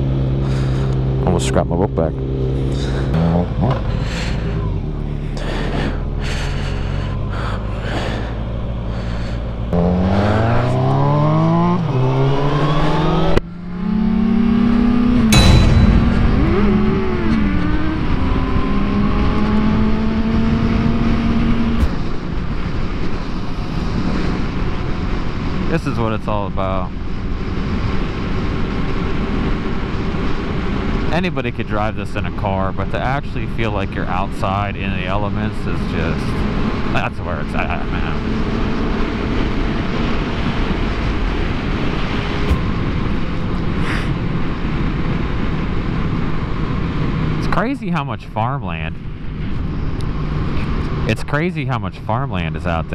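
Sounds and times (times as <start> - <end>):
motorcycle engine running: 0.0 - 12.8.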